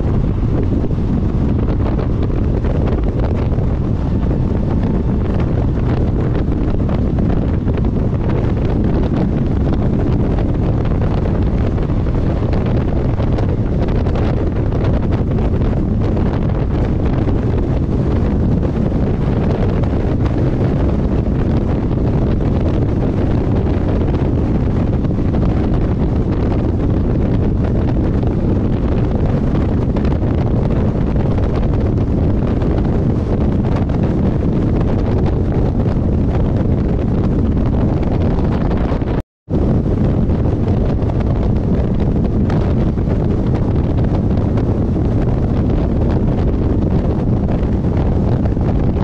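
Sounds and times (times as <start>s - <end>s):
train rumbling on the track: 0.0s - 49.0s
wind buffeting a microphone: 0.0s - 49.0s.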